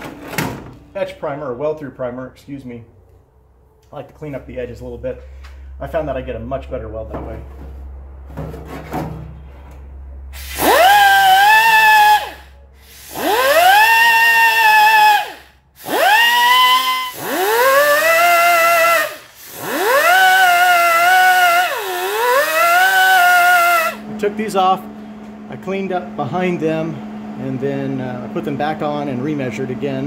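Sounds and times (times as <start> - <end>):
air grinder whining: 10.3 - 24.2
hiss of air: 10.4 - 10.8.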